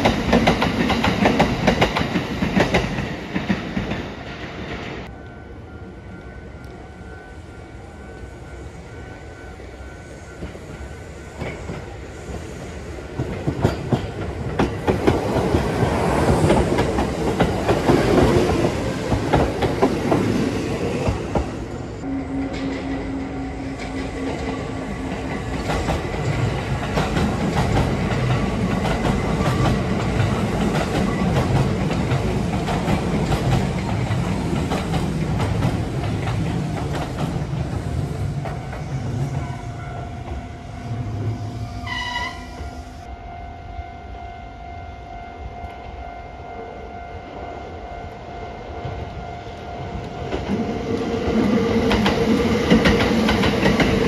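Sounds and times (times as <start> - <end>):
train wheels clattering over rails: 0.0 - 5.1, 13.1 - 21.6, 22.5 - 39.3, 50.3 - 54.0
passing train low rumble: 0.0 - 54.0.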